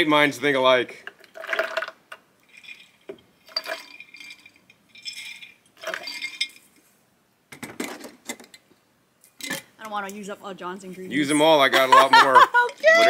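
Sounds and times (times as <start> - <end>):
glass jars clinking: 1.4 - 6.7.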